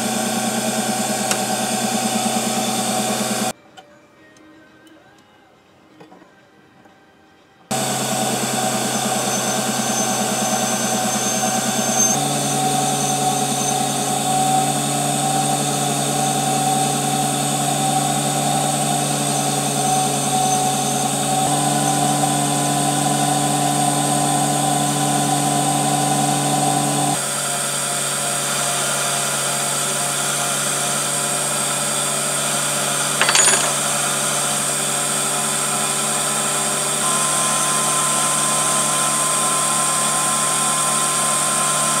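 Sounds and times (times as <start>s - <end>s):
lathe motor humming: 0.0s - 3.5s, 7.7s - 27.2s.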